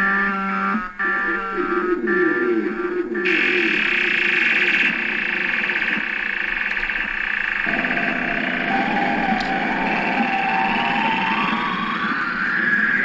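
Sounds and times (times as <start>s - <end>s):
buzzy electronic synth drone: 0.0s - 13.0s
low rising synth tone: 6.0s - 13.0s.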